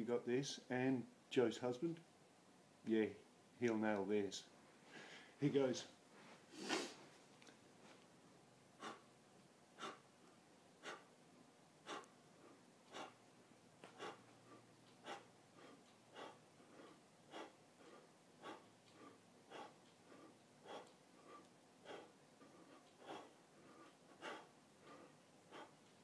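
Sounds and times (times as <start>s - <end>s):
man breathing sharply: 4.9s - 5.4s, 8.8s - 9.1s, 9.8s - 10.1s, 10.8s - 11.1s, 11.8s - 13.2s, 13.8s - 25.9s.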